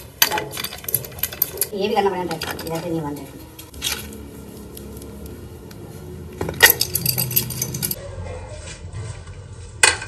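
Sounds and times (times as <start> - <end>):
small metal parts clinking: 0.2 - 4.1, 6.5 - 8.0.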